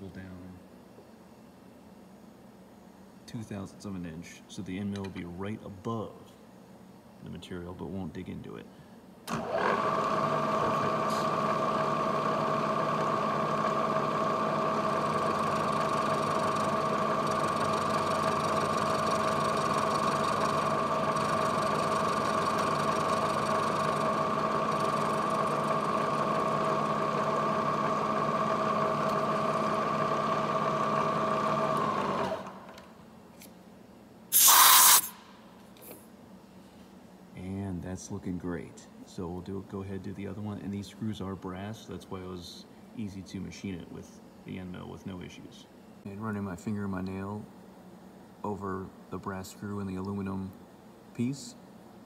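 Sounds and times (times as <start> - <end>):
milling machine whine: 9.3 - 32.7
loud hissing burst: 34.3 - 35.3.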